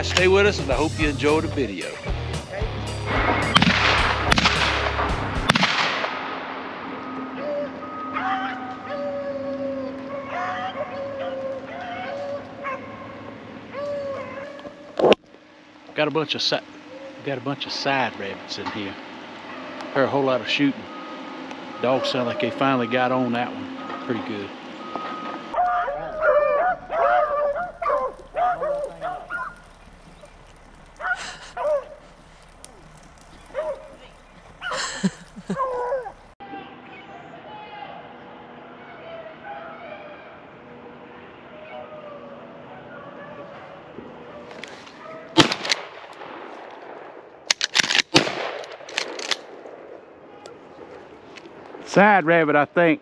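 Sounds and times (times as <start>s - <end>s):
shotgun shots: 3.1s - 7.2s, 45.4s - 49.9s
dogs baying: 7.0s - 15.1s, 16.7s - 17.4s, 19.0s - 36.4s, 41.5s - 45.4s.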